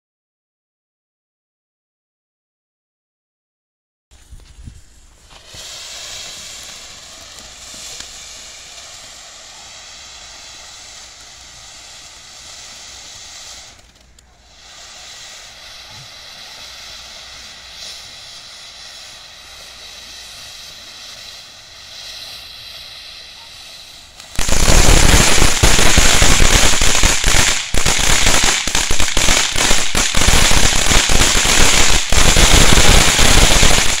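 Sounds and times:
firework fountain hissing: 4.2s - 34.0s.

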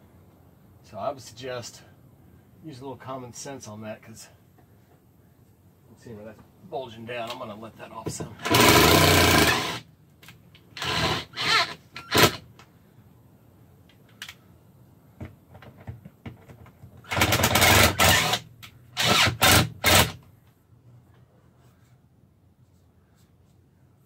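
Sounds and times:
cordless drill driving bolts: 8.4s - 9.8s, 10.8s - 12.4s, 17.0s - 20.2s.

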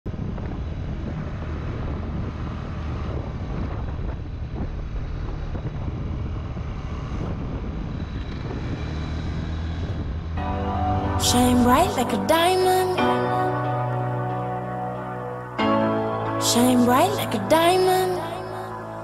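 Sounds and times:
wind rushing over microphone: 0.1s - 10.4s.

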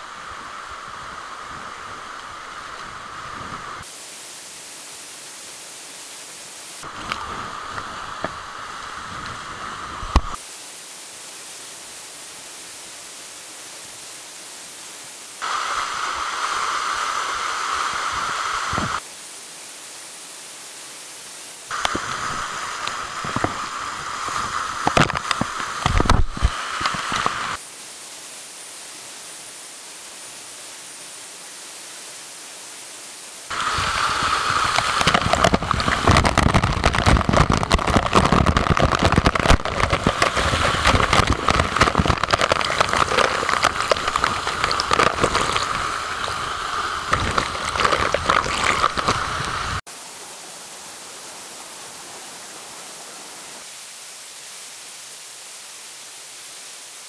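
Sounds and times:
waterfall splashing onto rocks: 0.0s - 14.2s, 15.4s - 19.1s, 21.7s - 27.7s, 33.4s - 49.9s.

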